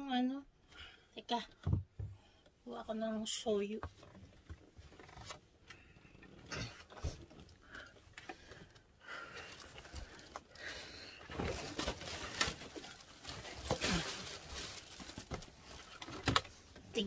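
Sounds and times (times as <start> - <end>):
rustling: 4.0 - 16.8.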